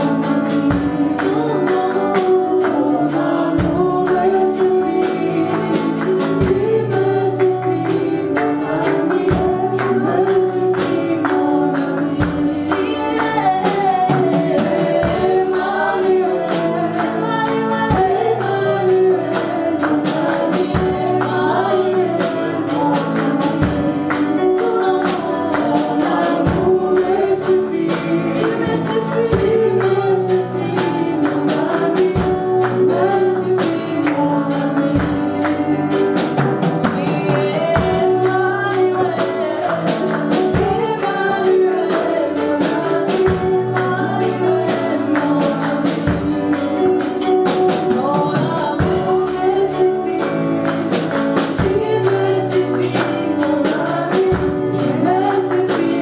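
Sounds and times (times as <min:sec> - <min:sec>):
group singing gospel song: 0:00.0 - 0:56.0
hand clapping: 0:38.2 - 0:41.8, 0:50.2 - 0:54.4.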